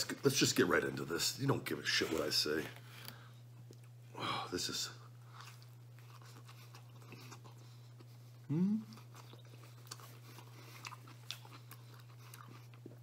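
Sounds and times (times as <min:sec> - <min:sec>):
steady low hum: 0:00.0 - 0:13.0
man chewing crunchy food: 0:05.1 - 0:13.0.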